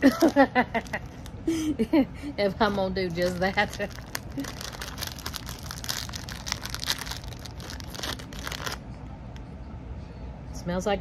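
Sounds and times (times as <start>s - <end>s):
chip bag crinkling and tearing: 0.0s - 1.3s, 2.6s - 8.8s.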